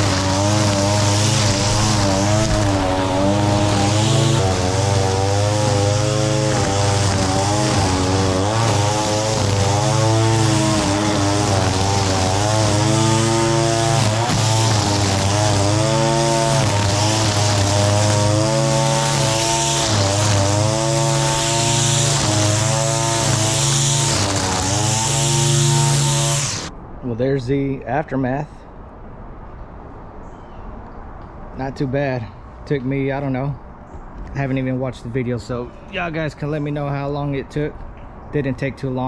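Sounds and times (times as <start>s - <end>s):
string trimmer engine running: 0.0s - 26.7s
trimmer line cutting grass: 0.0s - 26.7s.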